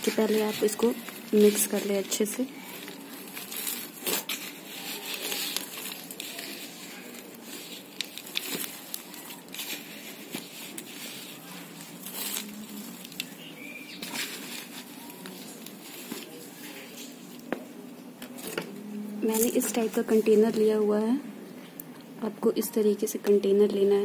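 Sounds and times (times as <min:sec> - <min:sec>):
hand rustling leaves and soil: 0:00.0 - 0:17.5, 0:19.2 - 0:21.0
small crackles and clicks: 0:00.0 - 0:17.5.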